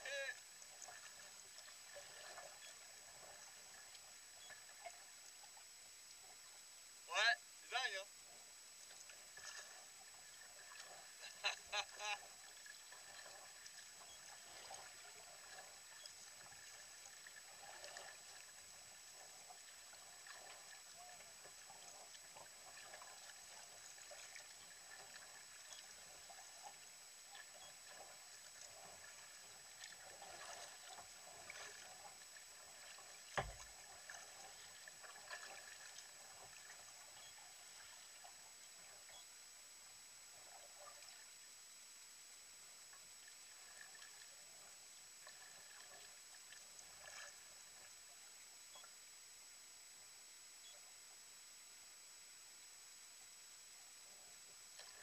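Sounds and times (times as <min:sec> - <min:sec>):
kayak paddle strokes: 0:00.0 - 0:06.4, 0:07.6 - 0:39.1
water lapping at hull: 0:00.0 - 0:49.2, 0:54.0 - 0:55.0
faint high whine: 0:00.0 - 0:55.0.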